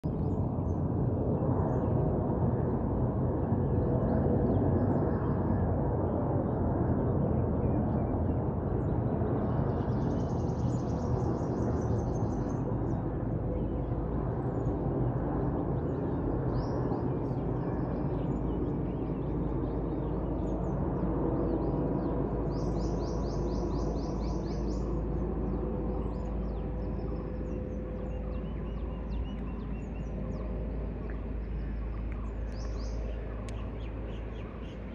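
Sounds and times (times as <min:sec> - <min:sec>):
distant jet engine rumble: 0:00.1 - 0:34.9
small birds chirping: 0:22.5 - 0:34.9.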